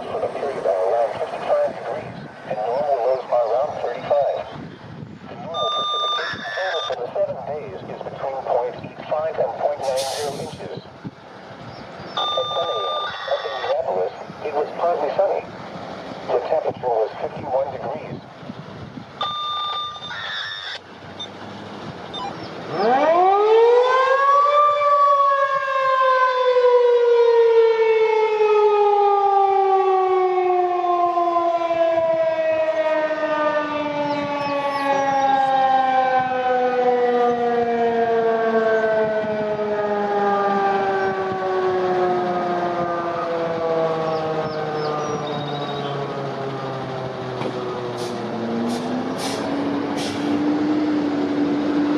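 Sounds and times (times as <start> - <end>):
rotating warning siren: 0.0 - 11.3, 12.0 - 18.3, 19.0 - 51.9
short electronic tone: 12.2 - 13.7.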